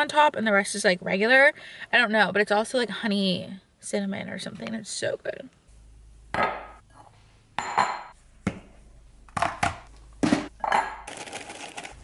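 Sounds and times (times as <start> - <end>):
glassware clinking on stone: 7.6 - 8.1, 10.6 - 11.1.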